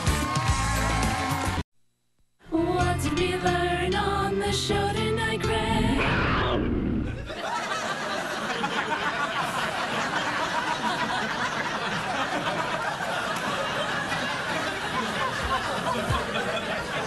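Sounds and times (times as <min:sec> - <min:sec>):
studio audience laughing: 0:07.0 - 0:17.0.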